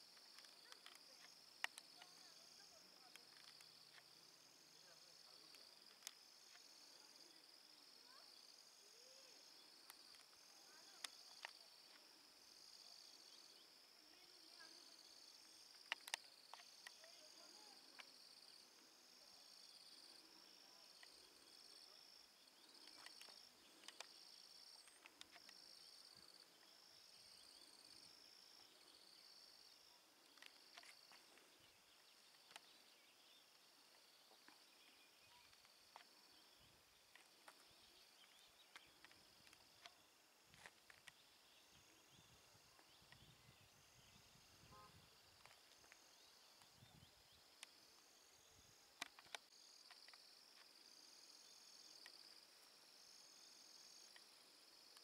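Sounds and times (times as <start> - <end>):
insects chirping: 0.0 - 55.0
faint clicks: 0.1 - 4.1, 15.7 - 17.2, 22.7 - 26.7, 30.2 - 32.8, 49.0 - 50.7.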